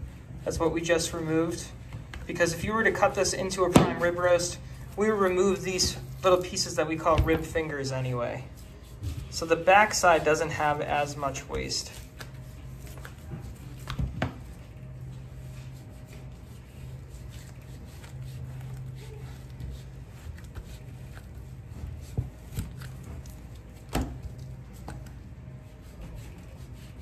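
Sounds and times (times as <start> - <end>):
steady low hum: 0.0 - 27.0
knife scraping meat crust: 15.9 - 21.6.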